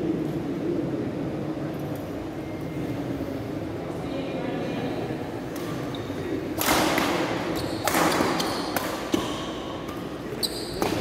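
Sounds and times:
murmur in echoing hall: 0:00.0 - 0:11.0
racket hitting shuttlecock: 0:06.6 - 0:10.1
shoe squeaks: 0:07.6 - 0:09.5, 0:10.3 - 0:11.0.

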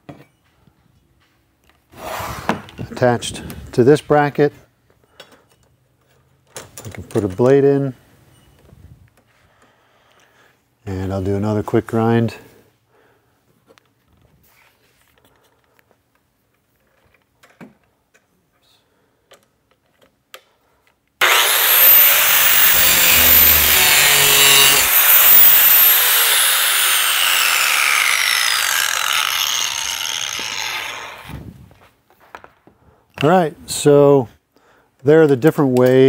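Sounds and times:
angle grinder grinding metal: 0:21.2 - 0:31.4.

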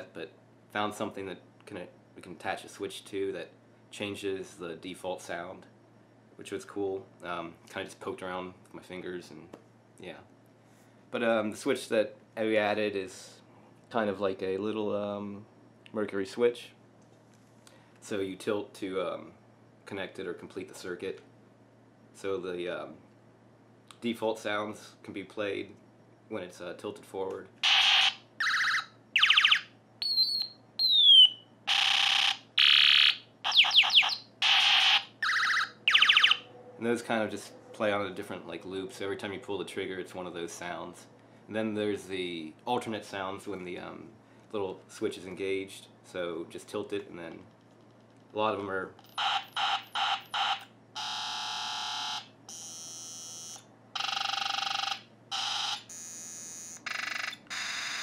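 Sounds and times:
toy ray gun sound effects: 0:27.6 - 0:36.4.

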